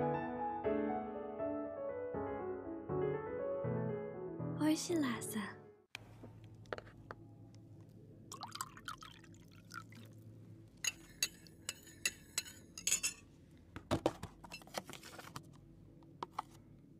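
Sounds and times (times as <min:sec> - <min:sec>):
tea pouring into a glass: 0:08.3 - 0:10.2.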